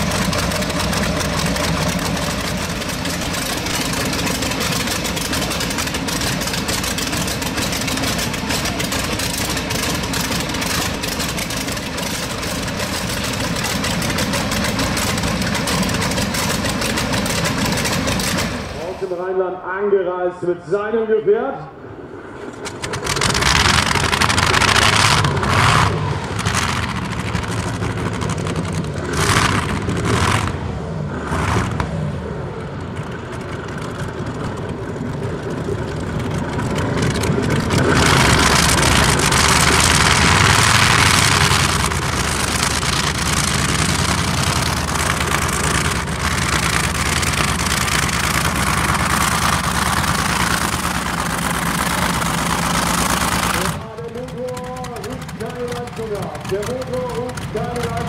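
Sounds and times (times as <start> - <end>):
tractor engine revving: 0.0 - 19.5, 22.3 - 58.0.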